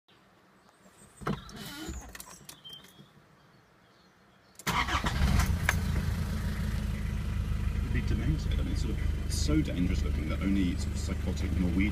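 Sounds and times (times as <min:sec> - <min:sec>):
diesel engine cranking and idling: 0:04.6 - 0:11.9.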